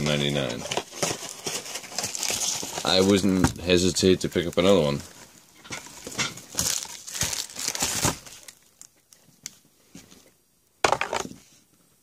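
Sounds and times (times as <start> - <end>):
cardboard box crinkling: 0.2 - 3.4, 5.9 - 8.9.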